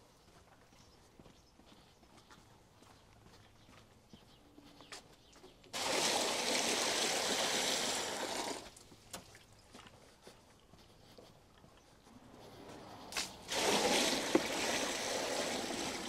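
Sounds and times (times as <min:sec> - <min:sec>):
water splashing into plastic tub: 0:05.8 - 0:09.5, 0:13.2 - 0:16.0.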